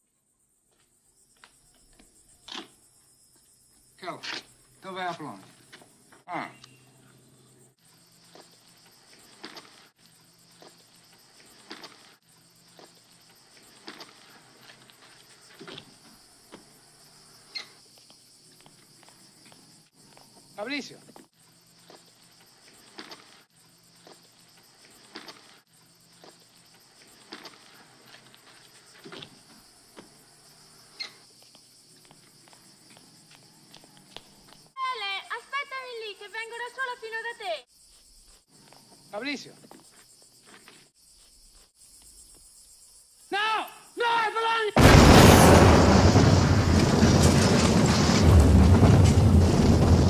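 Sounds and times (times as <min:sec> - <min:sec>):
insects chirring: 0:00.0 - 0:50.0
man shouting: 0:43.3 - 0:44.8
heavy rumble: 0:44.8 - 0:50.0
loud explosion: 0:44.8 - 0:50.0.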